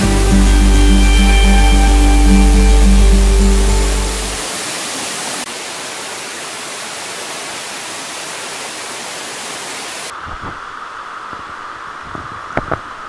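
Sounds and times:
stream over rocks: 0.0s - 10.4s.

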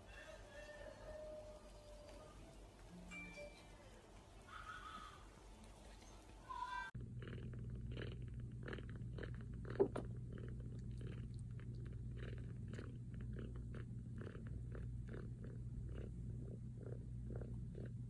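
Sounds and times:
steady low hum: 1.8s - 18.0s.

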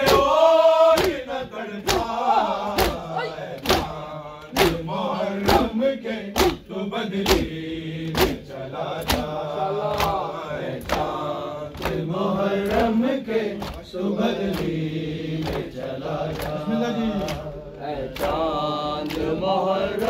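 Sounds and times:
hand slaps on chest: 0.0s - 1.2s, 1.8s - 4.8s, 6.4s - 8.4s, 9.0s - 12.0s
men chanting a lament: 0.0s - 20.0s.

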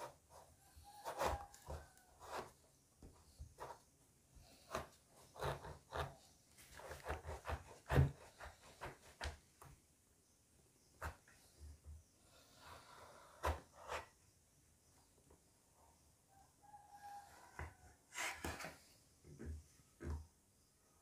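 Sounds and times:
knife cutting through fruit rind: 0.8s - 2.6s, 4.5s - 9.2s.

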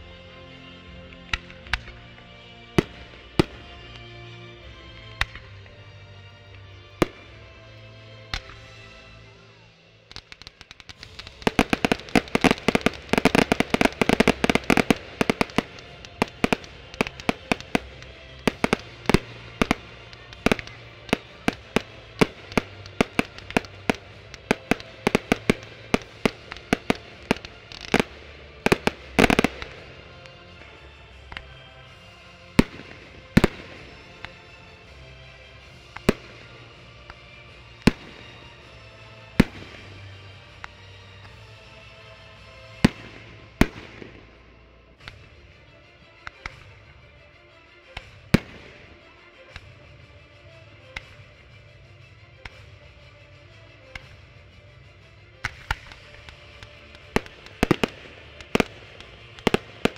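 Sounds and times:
fireworks bursting with bangs: 2.8s - 5.7s, 8.3s - 9.0s, 9.6s - 47.1s, 47.8s - 59.9s.

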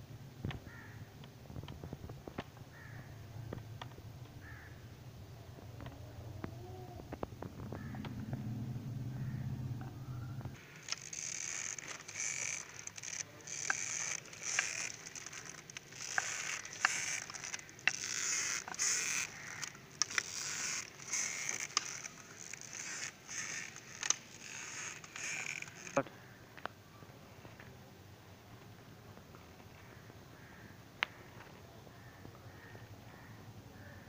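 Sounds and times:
sharp clicks: 9.8s - 26.7s.

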